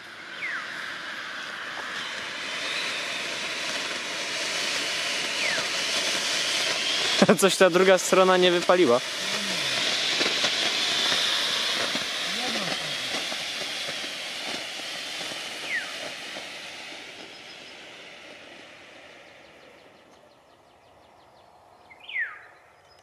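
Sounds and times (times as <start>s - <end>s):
smoke generator hissing: 0.0s - 22.1s.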